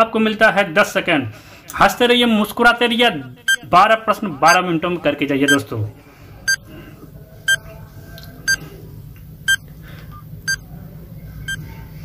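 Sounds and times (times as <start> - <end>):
low steady hum: 5.5 - 12.0.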